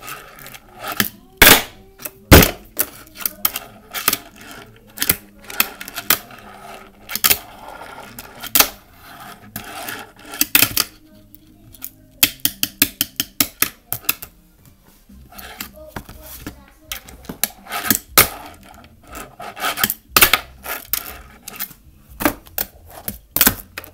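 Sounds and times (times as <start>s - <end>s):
fingerboard wheels rolling: 0.0s - 1.2s, 2.0s - 11.0s, 15.2s - 23.9s.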